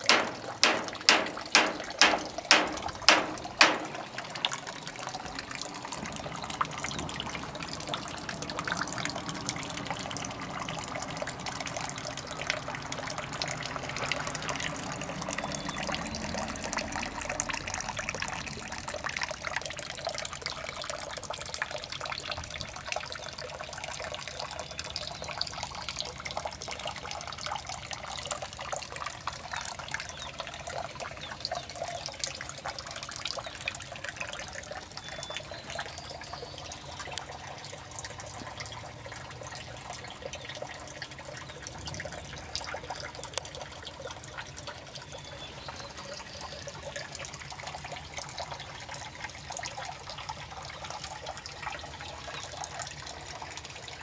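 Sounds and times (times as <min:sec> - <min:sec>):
sharp loud clicks: 0:00.0 - 0:04.2
water trickling and splashing: 0:00.0 - 0:54.0.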